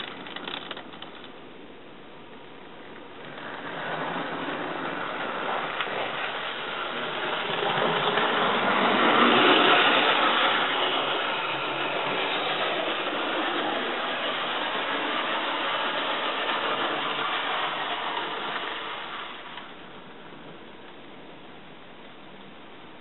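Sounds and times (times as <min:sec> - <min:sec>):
wheels rolling on rails: 0:00.0 - 0:01.4, 0:02.8 - 0:21.0
model train motor whirring: 0:03.3 - 0:19.7.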